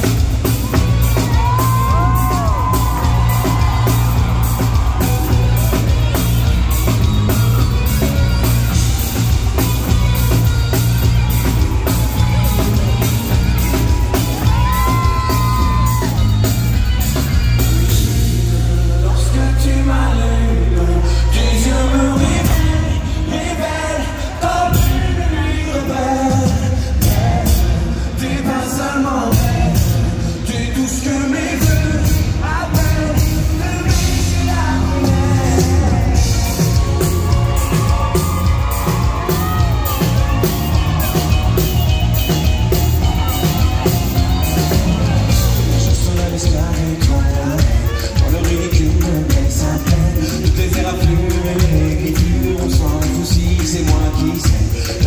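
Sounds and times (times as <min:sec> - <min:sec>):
pop band playing: 0:00.0 - 0:55.0
man singing into microphone: 0:17.8 - 0:36.9, 0:45.2 - 0:55.0.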